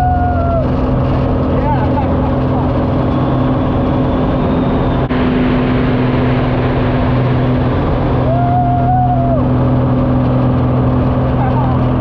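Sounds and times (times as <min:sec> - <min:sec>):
person whooping: 0:00.0 - 0:00.7, 0:08.2 - 0:09.5
plane engine droning: 0:00.0 - 0:12.0
wind rush: 0:00.0 - 0:12.0.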